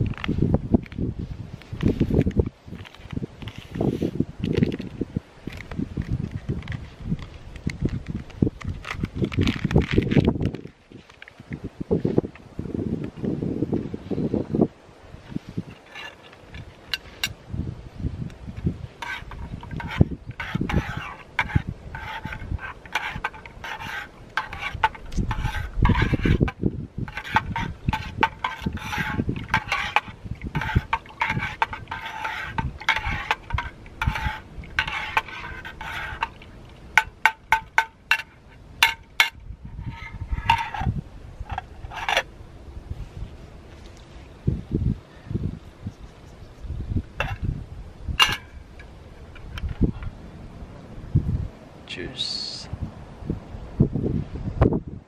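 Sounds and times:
spoon scraping metal cup: 19.0 - 42.3, 47.2 - 47.4, 48.2 - 48.5.

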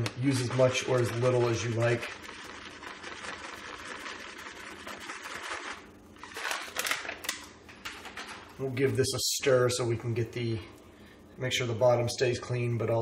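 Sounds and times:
plastic pouch crinkling: 0.5 - 7.5.

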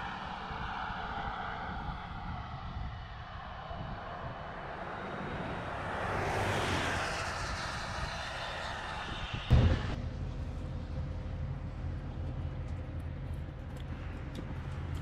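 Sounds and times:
tyres hissing on wet road: 4.8 - 9.9
loud thump: 9.4 - 10.0
low steady hum: 9.5 - 15.0.

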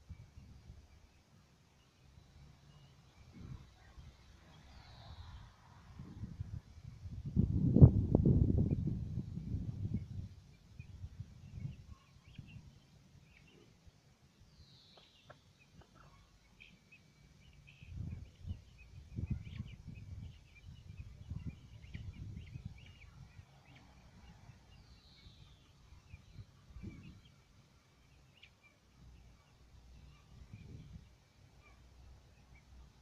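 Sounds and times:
chicks cheeping: 8.6 - 33.0.

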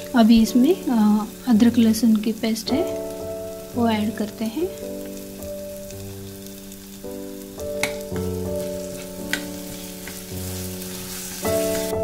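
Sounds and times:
background music of sustained chords: 0.0 - 12.0
faint sizzle in a pan: 0.0 - 12.0
metal spoon knocking a pan: 7.8 - 8.4.

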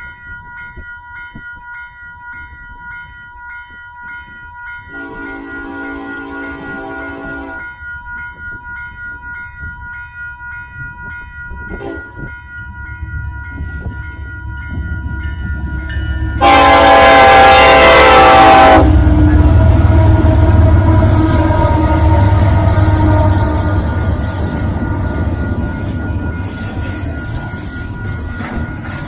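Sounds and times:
crossing bell dinging: 0.0 - 29.0
train horn blast: 4.9 - 7.6, 11.8 - 12.1, 16.4 - 24.4
locomotive engine rumble: 12.8 - 29.0.

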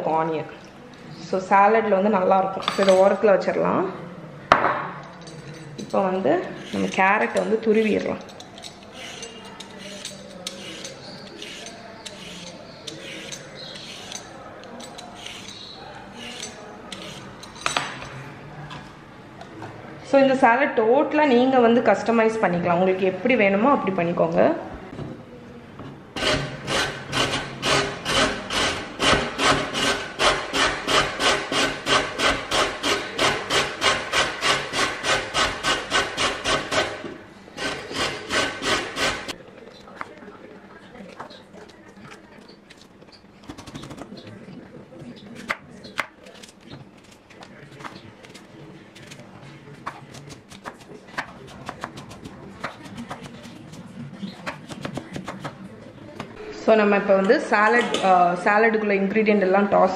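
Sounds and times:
carrot grating rasps: 6.5 - 7.9, 8.8 - 14.3, 26.2 - 37.0, 37.6 - 39.4.

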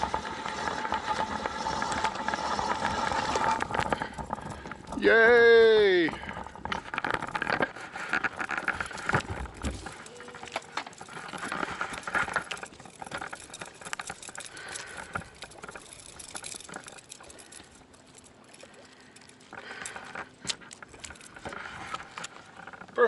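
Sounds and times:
fishing rod clicks and taps: 18.1 - 22.8.

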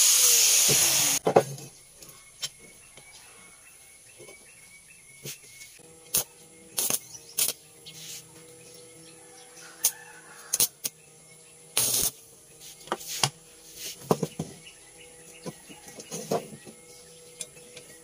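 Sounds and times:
welding arc crackling: 0.0 - 1.2, 6.0 - 7.6, 11.7 - 12.2.

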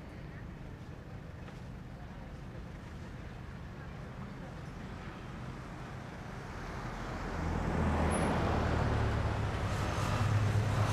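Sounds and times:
road traffic noise: 0.0 - 10.9
vehicle engine: 6.9 - 10.9.

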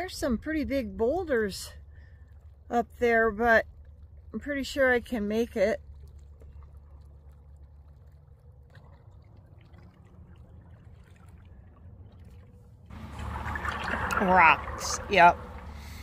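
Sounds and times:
wind rumbling on microphone: 9.4 - 16.0.

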